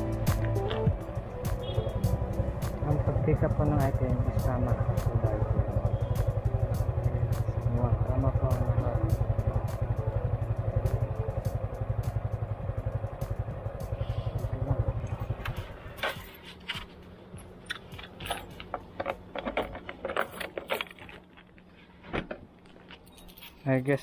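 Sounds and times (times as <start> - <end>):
motorcycle engine idling: 0.0 - 20.4
handling clicks jangles and crinkles: 15.5 - 21.9, 22.5 - 24.0.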